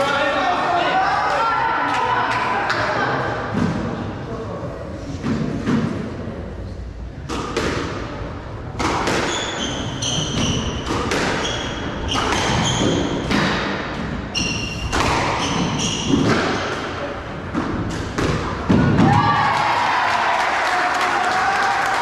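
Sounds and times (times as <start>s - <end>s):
squash ball hitting rackets and walls: 5.1s - 6.1s, 7.2s - 19.4s
shoe soles squeaking on wooden floor: 9.2s - 13.3s, 14.3s - 16.8s.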